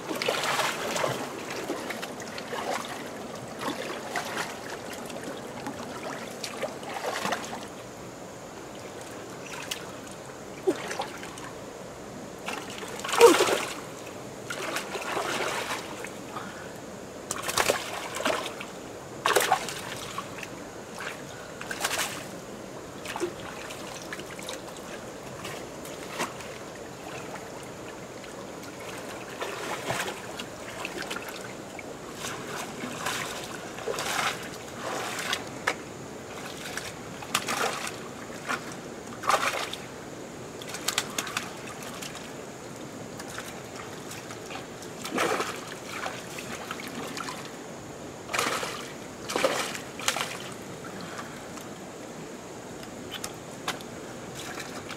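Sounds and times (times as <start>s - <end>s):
trickle of water: 23.0s - 39.8s
hands splashing in muddy water: 45.0s - 47.0s, 48.3s - 50.5s.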